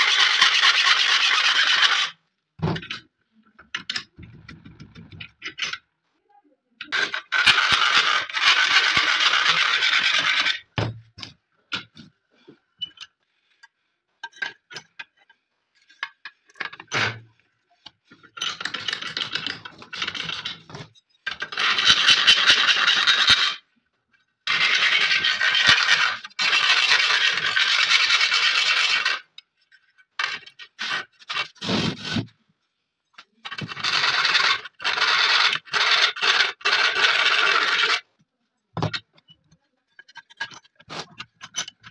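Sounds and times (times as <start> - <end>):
file scraping metal: 0.0 - 2.2, 6.9 - 10.8, 18.4 - 23.6, 24.5 - 32.3, 33.4 - 38.1, 38.8 - 41.9.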